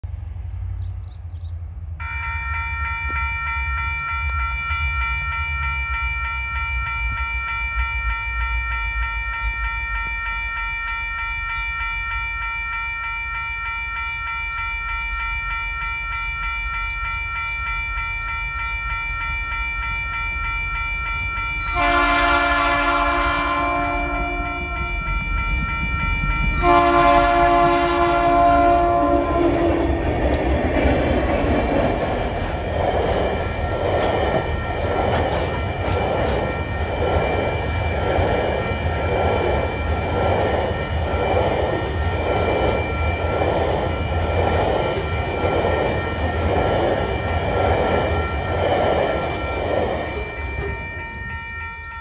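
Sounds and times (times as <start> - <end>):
level crossing warning bell: 2.0 - 52.0
diesel locomotive rumble: 21.7 - 51.5
locomotive horn blasts: 21.8 - 25.0, 26.6 - 29.7.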